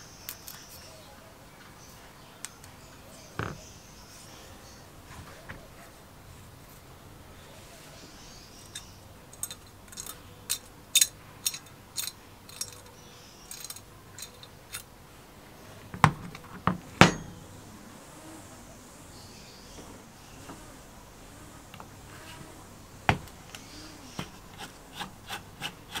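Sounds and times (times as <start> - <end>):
metallic clicks of small parts: 8.6 - 14.9.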